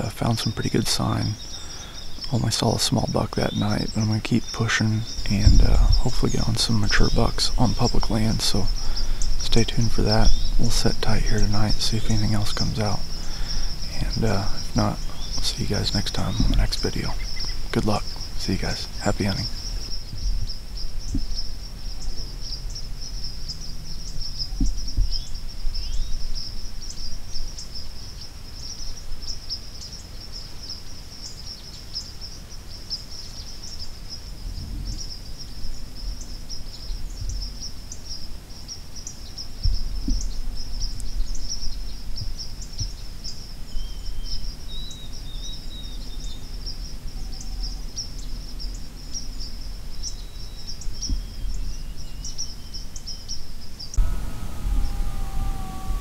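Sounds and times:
bird chirping: 0.0s - 56.0s
crickets trilling: 0.0s - 56.0s
low rumble: 5.2s - 6.6s, 54.0s - 56.0s.

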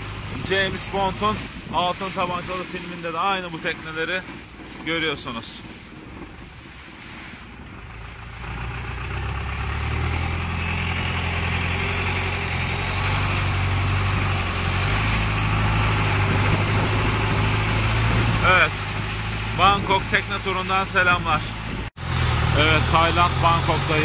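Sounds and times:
boat engine running: 0.0s - 24.0s
water rushing past hull: 0.0s - 24.0s.

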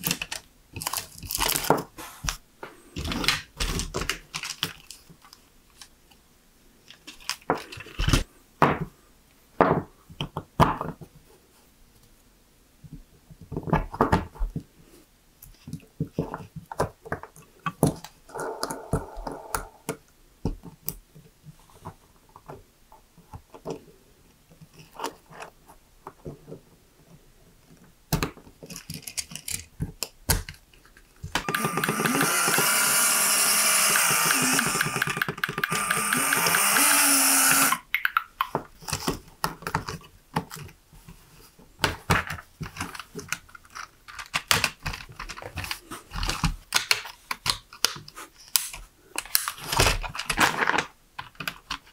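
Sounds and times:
plastic pieces clicking together: 28.1s - 40.7s, 41.8s - 51.9s
continuous whirring: 31.4s - 37.8s.

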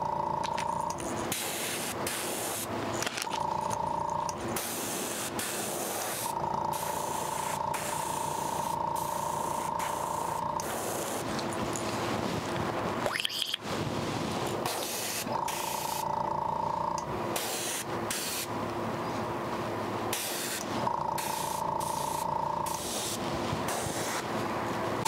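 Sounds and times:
steady background hum: 0.0s - 25.0s
airbrush spraying hiss: 1.3s - 2.7s, 4.6s - 11.3s, 14.6s - 16.0s, 17.4s - 18.5s, 20.1s - 24.3s.

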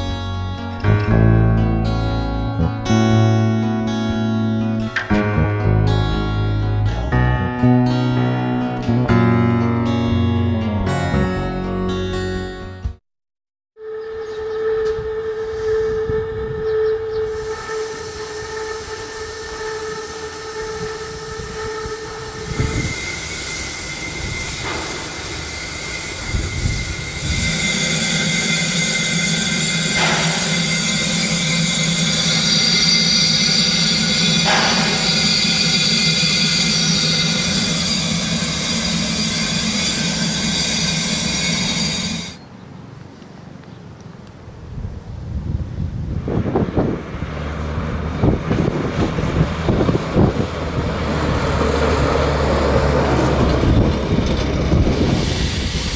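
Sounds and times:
steam hissing from locomotive: 17.2s - 42.4s, 54.7s - 55.9s.

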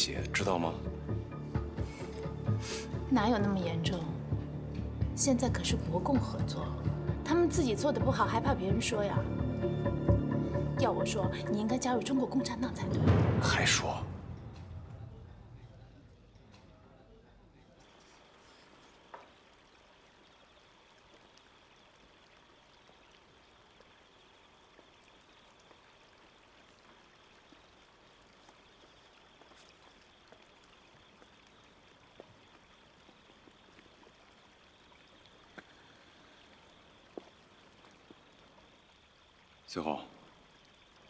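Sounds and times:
faint steady hiss: 10.3s - 41.0s.

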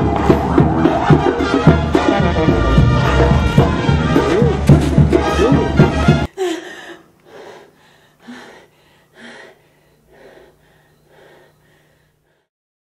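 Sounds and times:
music: 0.0s - 6.3s
faint low steady hum: 6.3s - 12.5s
frightened heavy breathing gasps: 6.4s - 12.5s.

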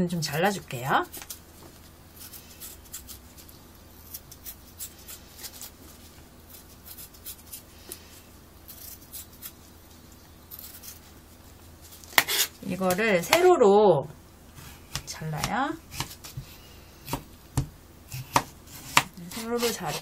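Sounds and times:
knife peeling cucumber: 2.1s - 9.7s, 10.4s - 11.1s, 14.6s - 20.0s.

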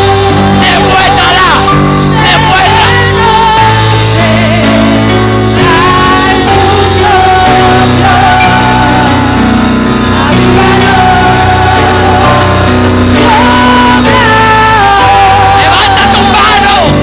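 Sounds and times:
keyboard chords: 0.0s - 17.0s
woman singing: 2.2s - 9.4s, 10.1s - 16.4s.

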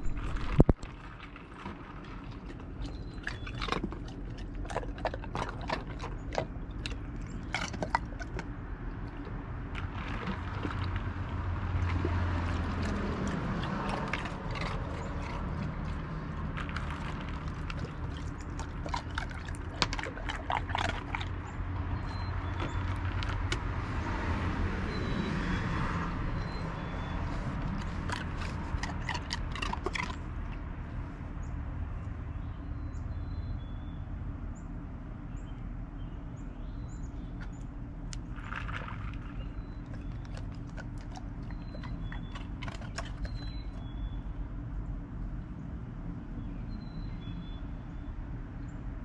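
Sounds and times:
dog crunching ice cubes: 0.0s - 23.7s, 27.3s - 30.7s, 38.1s - 44.0s
water sloshing: 0.0s - 23.7s, 26.4s - 30.6s, 38.2s - 43.9s
steady low hum: 0.0s - 49.0s.

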